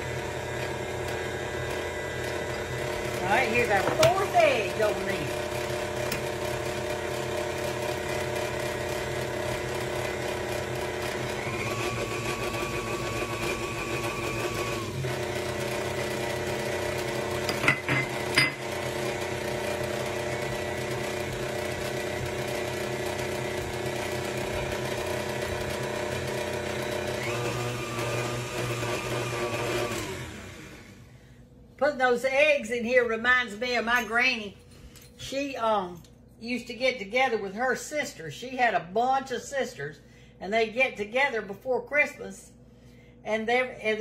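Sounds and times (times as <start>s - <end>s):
electric mixer running: 0.0s - 31.2s
higher mixer whine: 0.0s - 31.3s.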